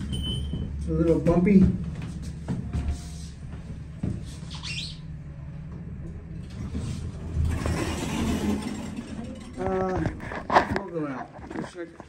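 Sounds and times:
elevator doors opening rush: 0:00.0 - 0:02.1, 0:06.2 - 0:10.4
elevator low hum: 0:00.0 - 0:10.9.

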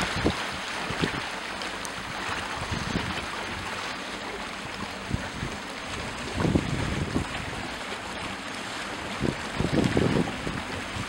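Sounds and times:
rushing wind: 0:00.0 - 0:01.3, 0:02.0 - 0:03.8, 0:05.0 - 0:07.7, 0:08.9 - 0:11.0
wind buffeting microphone: 0:00.0 - 0:01.4, 0:02.0 - 0:11.0
choppy lake water: 0:00.0 - 0:11.0.

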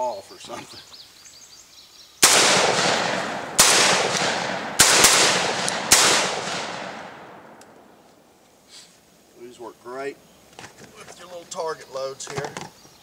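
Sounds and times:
shotgun shots echoing: 0:02.2 - 0:07.8.

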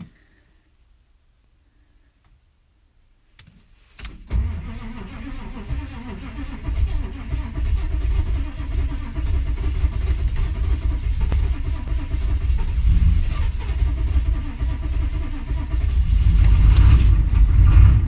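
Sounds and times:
diesel engine cranking and idling: 0:04.2 - 0:18.0.

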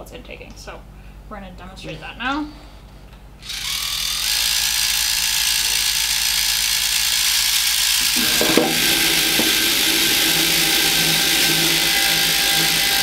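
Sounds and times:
electric motors whirring: 0:03.4 - 0:13.0
low hum: 0:07.8 - 0:13.0
knock: 0:08.2 - 0:10.0.

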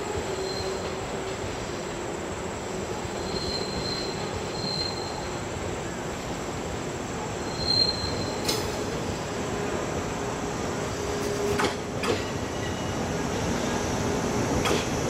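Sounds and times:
train rolling rumble: 0:00.0 - 0:15.0
train wheels squealing: 0:00.1 - 0:01.2, 0:03.0 - 0:05.6, 0:07.4 - 0:09.0, 0:11.2 - 0:13.8.

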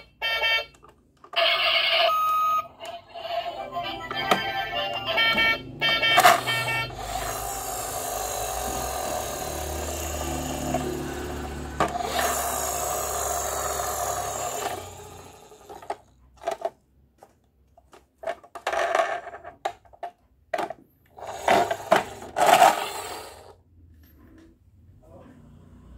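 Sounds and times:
toy short tone: 0:00.0 - 0:07.5
toy engine-like whir: 0:01.4 - 0:16.6, 0:21.1 - 0:23.6.

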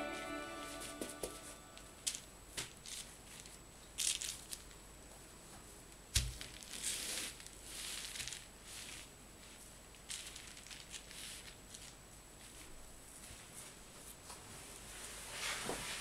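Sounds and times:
bubble wrap crinkling: 0:06.2 - 0:12.8.

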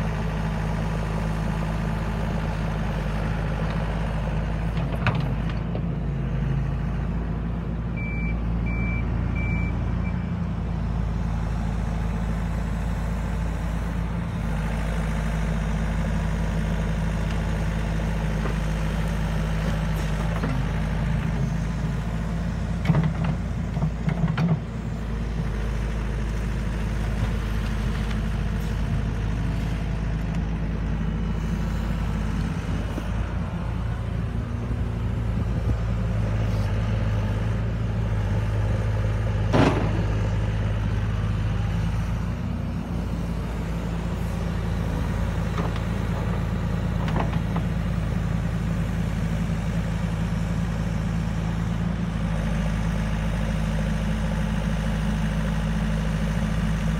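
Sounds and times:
excavator diesel engine running: 0:00.0 - 0:56.9
knocks and clatter: 0:39.5 - 0:40.1.

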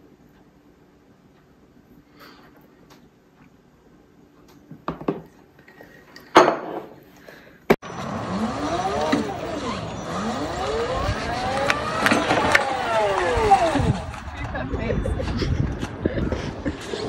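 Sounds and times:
riding lawn mower motor whine: 0:07.8 - 0:17.0.

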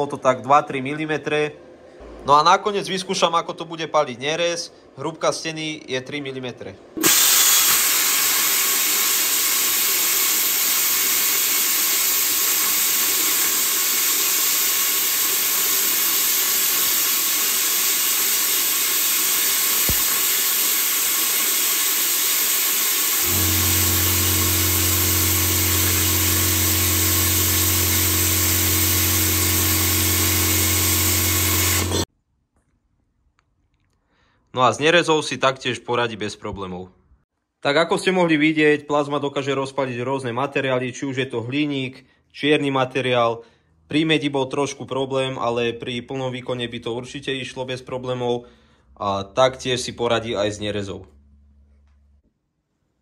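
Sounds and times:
plasma cutter hissing: 0:07.0 - 0:32.1
low hum: 0:23.3 - 0:32.0.

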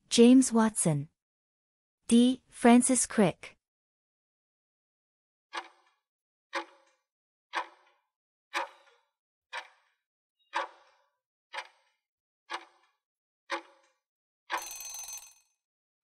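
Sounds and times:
clock ticking: 0:05.6 - 0:05.8, 0:07.5 - 0:07.9, 0:08.6 - 0:09.9, 0:10.5 - 0:10.9, 0:11.6 - 0:11.9, 0:12.5 - 0:12.8.

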